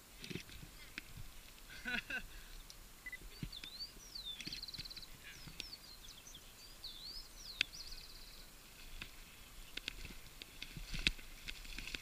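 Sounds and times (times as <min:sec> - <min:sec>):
birds calling with whistled trills: 0:01.8 - 0:08.6.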